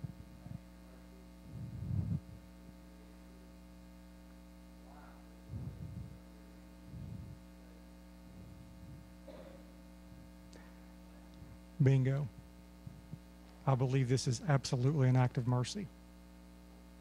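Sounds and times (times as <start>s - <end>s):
electrical mains hum: 0.0s - 17.0s
faint distant voice speaking: 0.3s - 1.8s, 4.8s - 5.9s.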